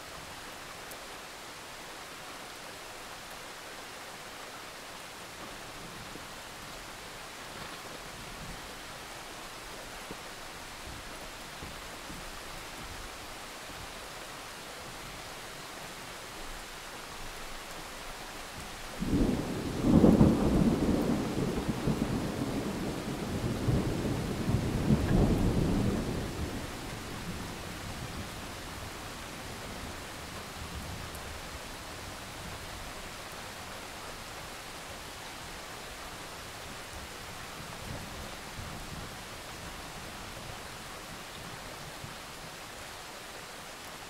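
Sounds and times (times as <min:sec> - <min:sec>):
steady rain: 0:00.0 - 0:44.0
thunder rumbling: 0:19.0 - 0:28.4.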